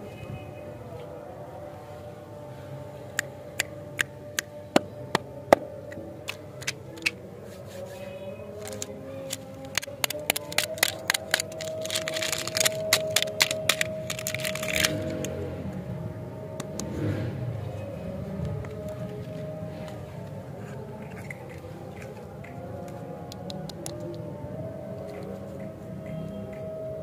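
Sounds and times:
soft background music: 0:00.0 - 0:27.0
plastic wrapper crinkling: 0:08.6 - 0:15.3.

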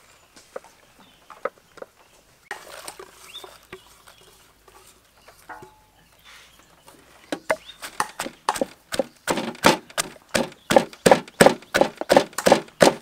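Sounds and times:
pestle pounding in a mortar: 0:07.5 - 0:13.0.

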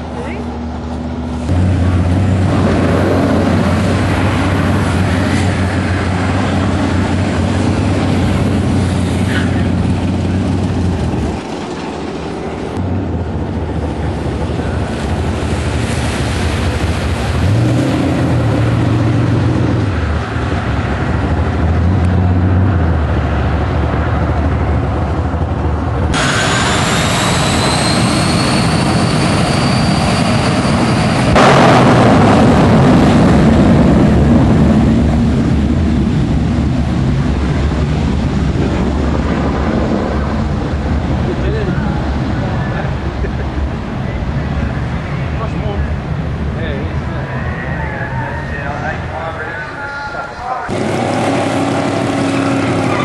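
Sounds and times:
car engine revving: 0:00.0 - 0:28.7, 0:31.2 - 0:42.4, 0:50.7 - 0:53.0
jet engine whine: 0:00.0 - 0:53.0.

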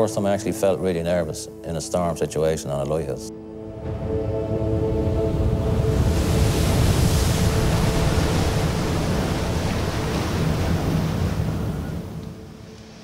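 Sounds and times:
wind buffeting microphone: 0:03.8 - 0:12.8
surf breaking against cliffs: 0:03.9 - 0:13.0.

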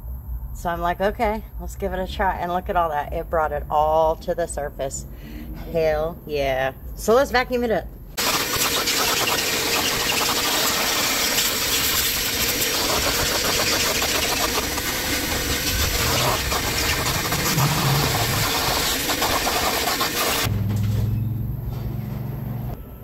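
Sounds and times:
vacuum cleaner running: 0:08.2 - 0:20.5.

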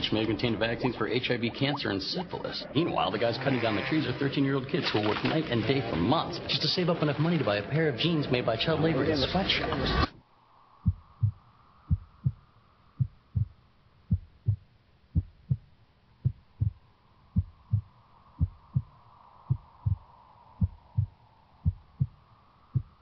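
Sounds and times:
faint steady hum: 0:10.2 - 0:23.0
slow heartbeat thumps: 0:10.8 - 0:23.0.

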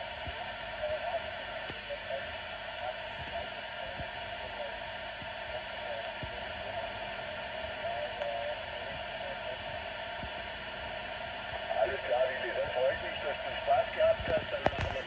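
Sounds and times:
faint wavering radio tone: 0:00.0 - 0:15.0
radio static hiss: 0:00.0 - 0:15.0.

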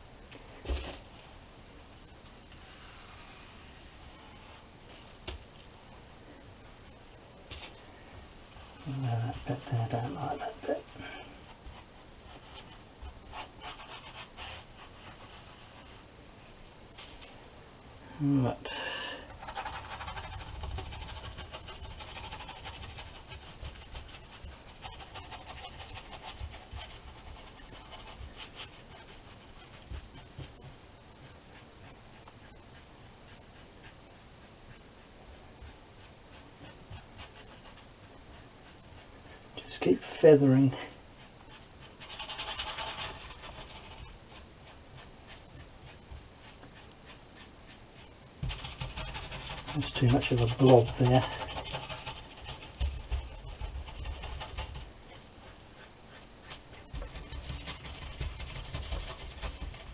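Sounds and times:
paintbrush scratching on board: 0:08.6 - 0:16.0, 0:19.3 - 0:40.4, 0:41.1 - 0:59.9.

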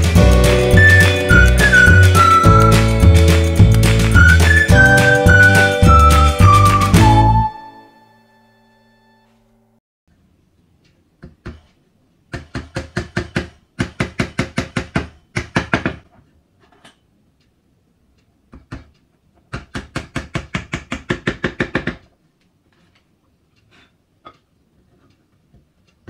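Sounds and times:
hammer tapping chisel into bamboo: 0:11.2 - 0:16.1, 0:18.5 - 0:22.1.

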